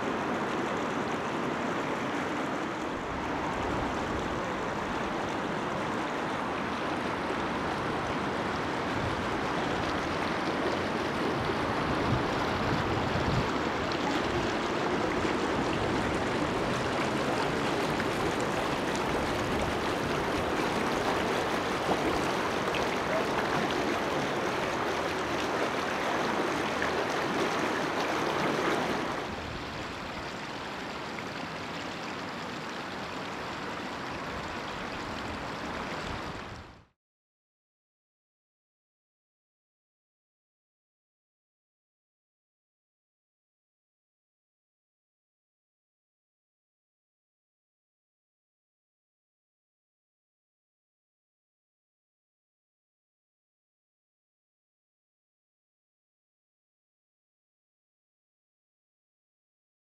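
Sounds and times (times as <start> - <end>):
floodwater running: 0.0 - 36.9.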